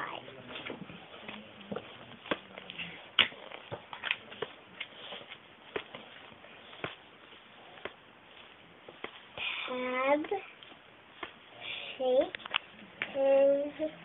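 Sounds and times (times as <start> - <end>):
book pages turning: 0.4 - 9.3.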